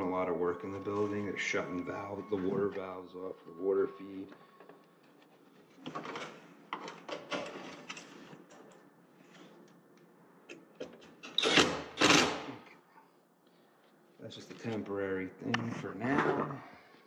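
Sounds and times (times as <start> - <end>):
cordless drill driving screw: 11.3 - 12.5.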